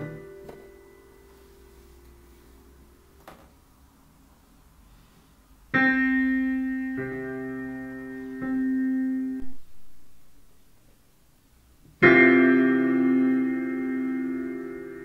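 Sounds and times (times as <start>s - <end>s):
piano chords: 0.0s - 3.8s, 5.6s - 10.7s, 11.9s - 15.0s.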